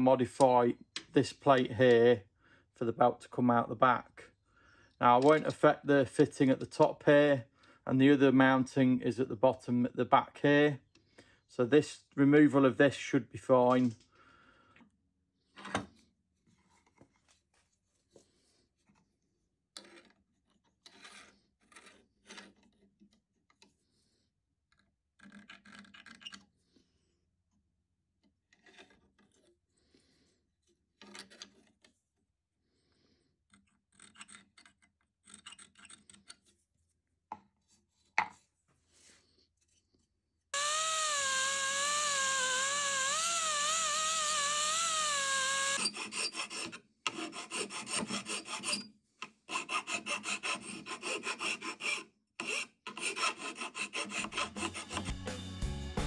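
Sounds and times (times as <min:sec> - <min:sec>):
rotary tool cutting whine: 0:40.6 - 0:46.7, 0:53.9 - 0:55.3
scriber scratching metal: 0:40.6 - 0:48.9, 0:49.5 - 0:55.2.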